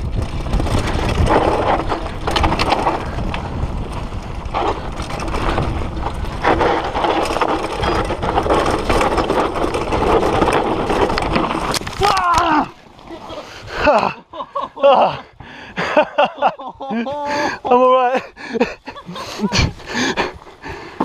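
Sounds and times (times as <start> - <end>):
bike clattering over rough ground: 0.0 - 14.2
wind rumble on microphone: 0.0 - 14.2, 18.6 - 21.0.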